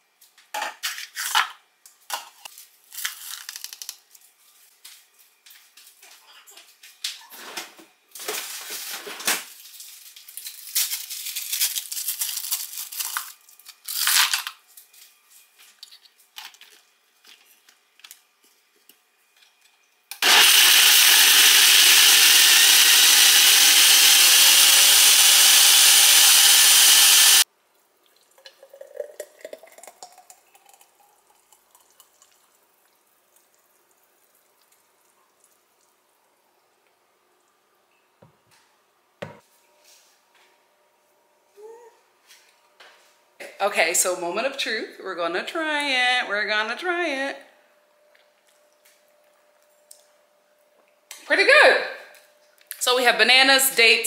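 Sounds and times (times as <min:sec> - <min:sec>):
blender running: 0:20.2 - 0:27.4
liquid pouring into glass: 0:28.0 - 0:35.9.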